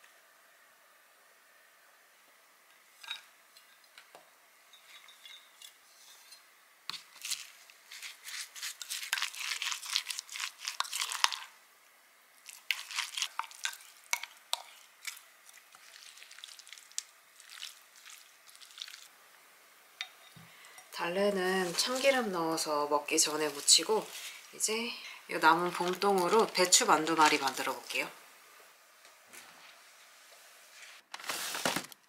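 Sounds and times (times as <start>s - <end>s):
spatula scraping sauce in glass cup: 5.0s - 11.5s.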